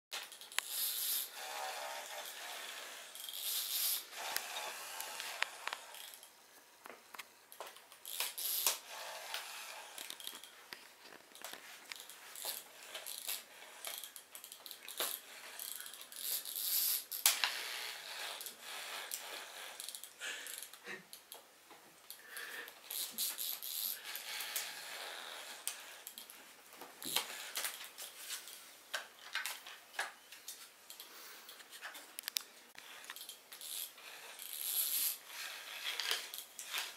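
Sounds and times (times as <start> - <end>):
toy mouse mechanism whirring: 0.2 - 6.4, 7.5 - 10.6, 11.4 - 20.8, 22.1 - 26.3, 27.0 - 28.1, 32.2 - 36.9.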